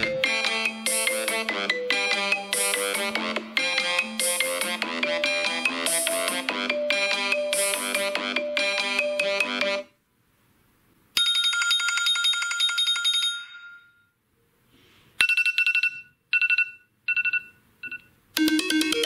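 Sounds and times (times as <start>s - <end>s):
phone ringtones: 15.2s - 19.0s.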